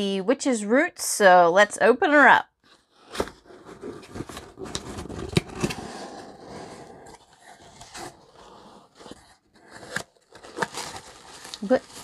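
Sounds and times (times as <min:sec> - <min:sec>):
cardboard scraping and rubbing: 0:03.0 - 0:12.0.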